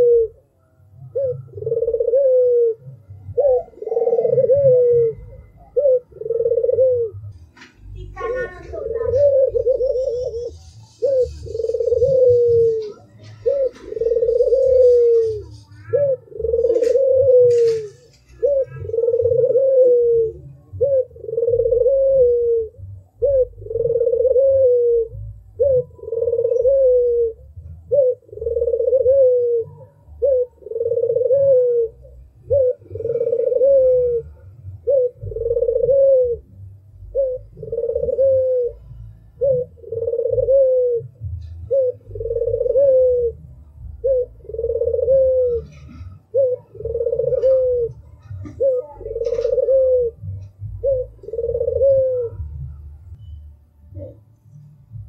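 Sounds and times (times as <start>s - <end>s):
dove cooing: 0.0s - 53.2s, 53.9s - 55.0s
low rumble: 47.5s - 55.0s.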